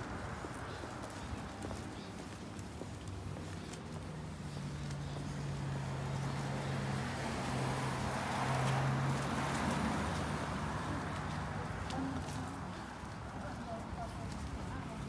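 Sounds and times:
car passing: 4.2s - 13.4s.

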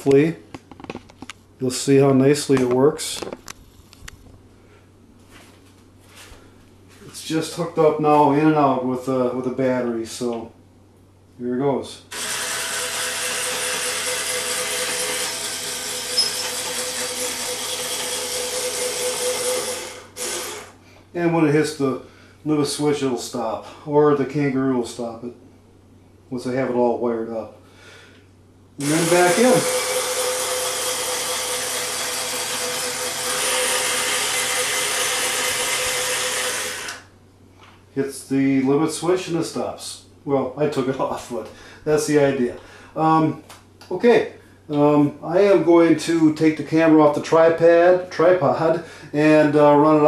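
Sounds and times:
electric motor whirring: 12.1s - 20.8s, 28.8s - 37.1s.

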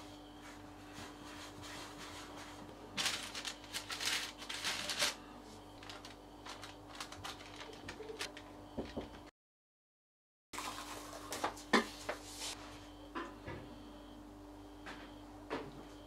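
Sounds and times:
baking paper rustling: 0.6s - 8.5s.

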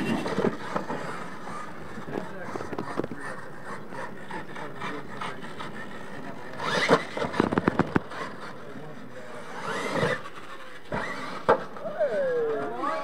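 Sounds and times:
toy truck motor whining: 0.0s - 13.0s.

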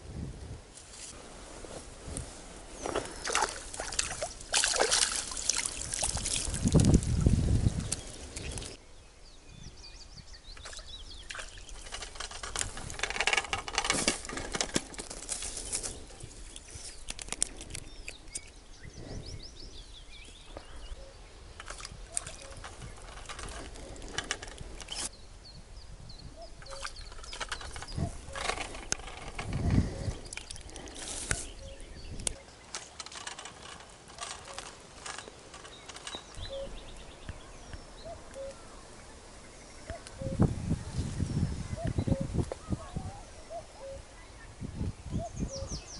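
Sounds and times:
grass rustling: 0.7s - 8.8s, 11.3s - 18.5s, 21.4s - 25.1s, 26.6s - 38.3s
small birds chirping: 2.7s - 13.0s, 15.3s - 45.9s
water splashing and sloshing: 2.8s - 8.8s.

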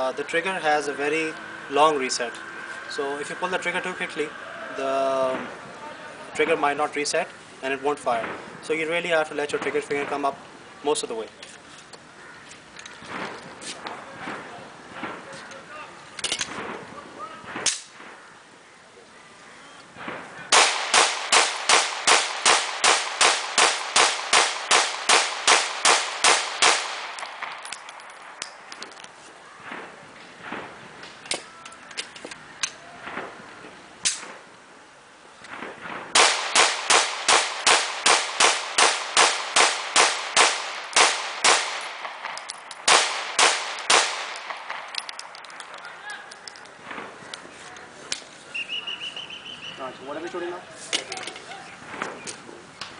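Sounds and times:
pistol shots: 20.0s - 28.8s, 35.6s - 45.6s.

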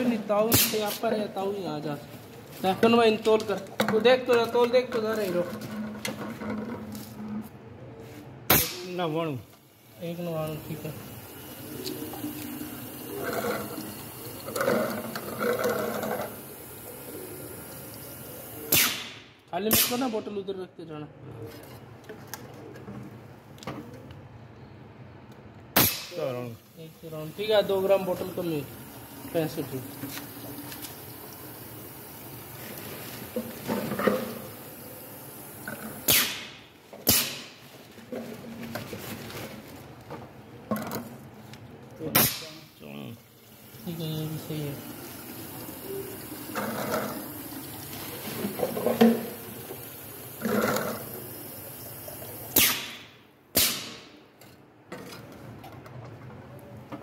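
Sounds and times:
compressed air hissing: 9.7s - 19.2s, 30.0s - 37.6s, 49.0s - 54.0s
liquid pouring into plastic bottle: 10.5s - 18.7s, 27.4s - 36.1s, 43.4s - 52.5s.

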